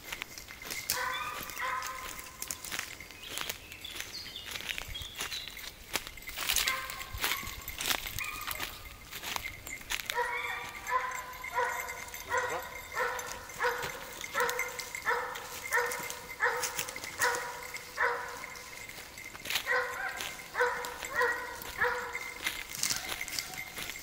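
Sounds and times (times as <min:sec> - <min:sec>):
dog barking: 0:00.9 - 0:02.3, 0:06.6 - 0:08.8, 0:10.1 - 0:18.7, 0:19.6 - 0:23.8.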